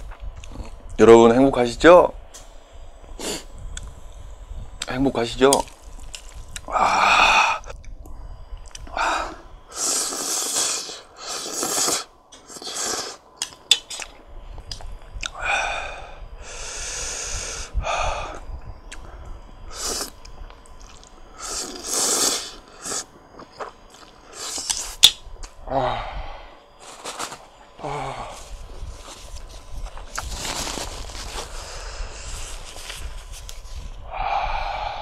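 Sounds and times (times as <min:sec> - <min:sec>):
sharp hissing breaths: 0:02.3 - 0:04.8, 0:06.3 - 0:13.4, 0:15.3 - 0:20.3, 0:21.2 - 0:23.3, 0:24.1 - 0:29.3, 0:30.5 - 0:35.0
person slurping noodles: 0:09.7 - 0:13.2, 0:19.7 - 0:20.2, 0:20.8 - 0:23.1, 0:23.9 - 0:24.9
pained groan: 0:25.6 - 0:26.5, 0:27.8 - 0:28.4.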